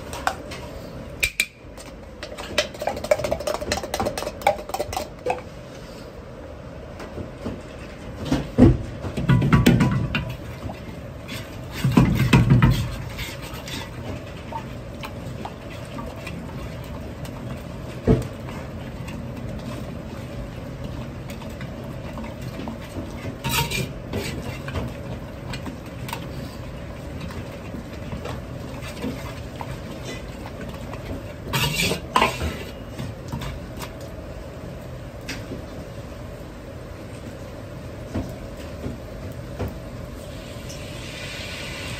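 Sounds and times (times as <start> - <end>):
steady background noise: 0.0 - 41.9
ladle scraping a wok: 10.8 - 16.9, 21.2 - 26.8, 28.3 - 34.0.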